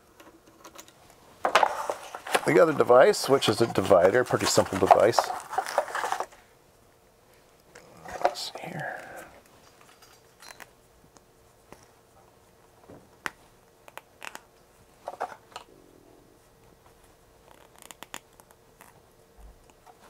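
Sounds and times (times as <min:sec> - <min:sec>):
faint steady hum: 0:00.0 - 0:20.0.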